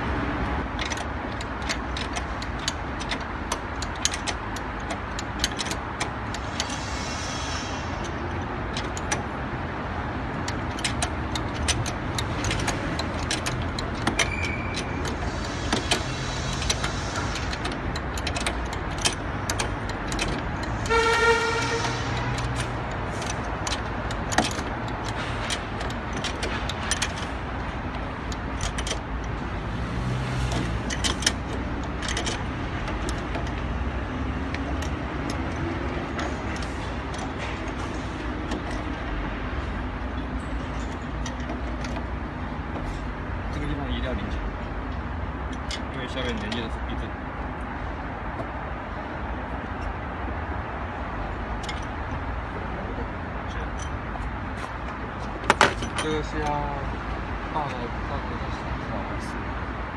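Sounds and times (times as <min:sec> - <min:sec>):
traffic hum: 0:00.0 - 0:59.9
hand tools clicking on metal: 0:00.7 - 0:06.8, 0:10.2 - 0:39.4
car horn toot: 0:20.8 - 0:22.3.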